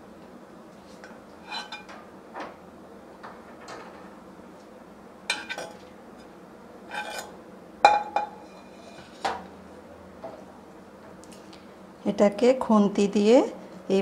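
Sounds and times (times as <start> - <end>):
spatula scraping metal plate: 6.9 - 7.3, 8.4 - 9.2.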